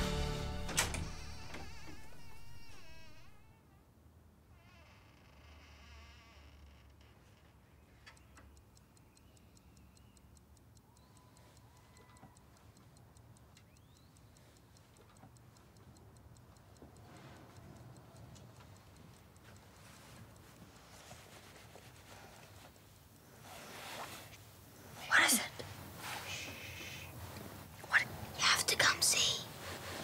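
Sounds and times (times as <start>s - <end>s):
clock ticking: 7.8s - 23.8s, 26.4s - 30.0s
soft rustle: 14.2s - 30.0s.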